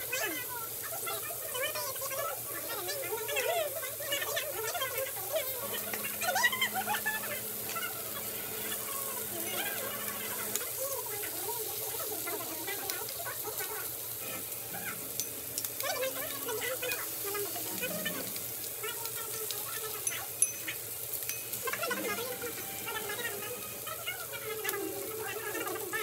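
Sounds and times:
seafood and meat sizzling on grill: 0:00.0 - 0:26.0
metal tongs clicking: 0:15.2 - 0:15.8, 0:20.0 - 0:21.7.

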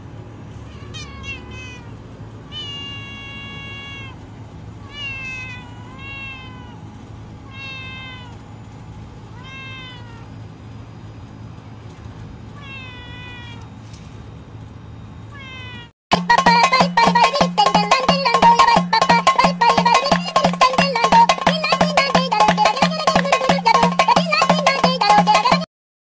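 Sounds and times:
cat meowing: 0:00.6 - 0:04.2, 0:04.8 - 0:08.4, 0:09.3 - 0:10.4, 0:12.5 - 0:13.7, 0:15.3 - 0:15.9.

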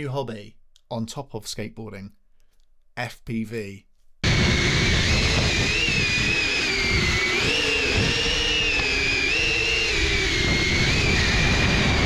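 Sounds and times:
low rushing noise: 0:04.2 - 0:12.0
quadcopter motors whining: 0:04.2 - 0:12.0.

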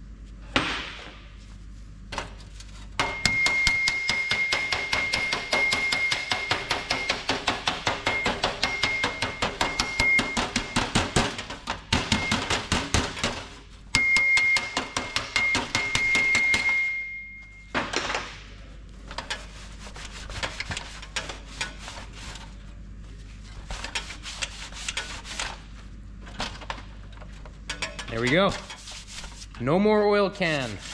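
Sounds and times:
hammer tapping steel panel: 0:03.0 - 0:13.4.

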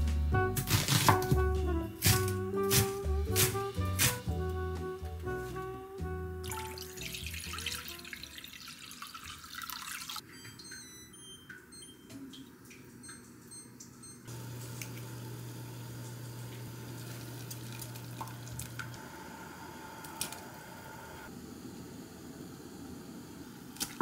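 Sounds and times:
liquid pouring and splashing into pot: 0:06.4 - 0:10.2, 0:16.9 - 0:19.0.

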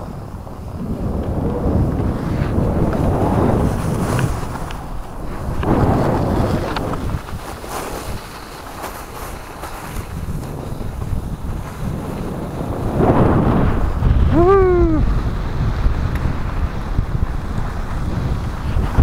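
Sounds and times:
skis sliding on snow: 0:00.0 - 0:19.0
wind rushing over microphone: 0:00.0 - 0:19.0
short vocal call: 0:14.3 - 0:15.1.

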